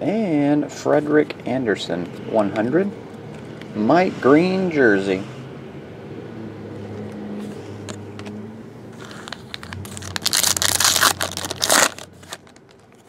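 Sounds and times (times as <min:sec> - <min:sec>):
foil wrapper tearing and crinkling: 0:09.0 - 0:13.0.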